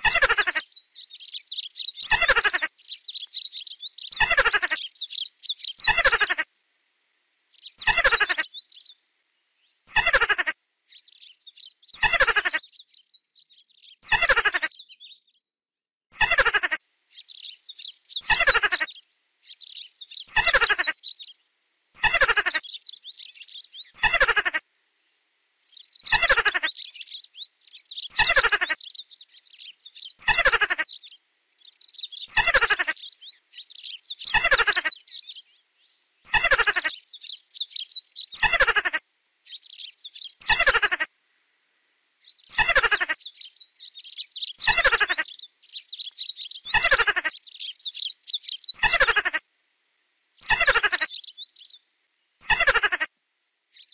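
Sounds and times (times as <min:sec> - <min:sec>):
faint high chirps: 0:16.6 - 0:24.9, 0:25.6 - 0:41.1, 0:42.2 - 0:53.1.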